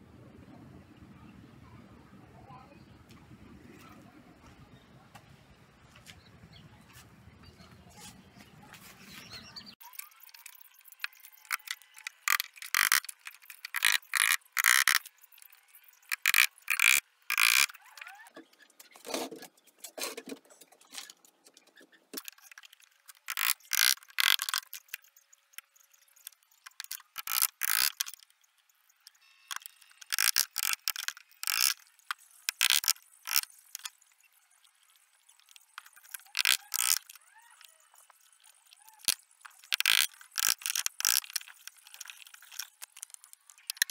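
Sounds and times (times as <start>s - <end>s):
wood clicking and knocking on wood: 35.4s - 37.2s.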